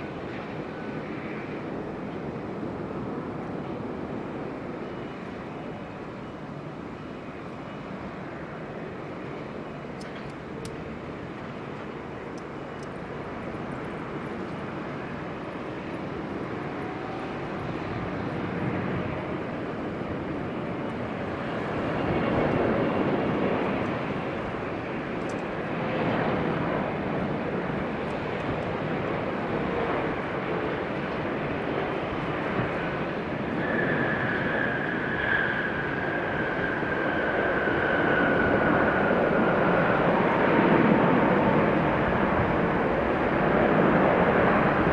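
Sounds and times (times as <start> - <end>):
jet engines of landing airliner: 0.0 - 44.9.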